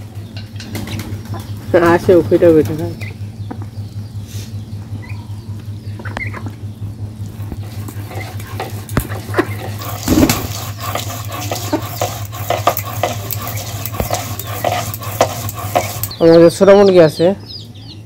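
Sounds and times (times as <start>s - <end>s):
steady low hum: 0.0s - 18.0s
utensil scraping in cooking pot: 7.6s - 16.4s.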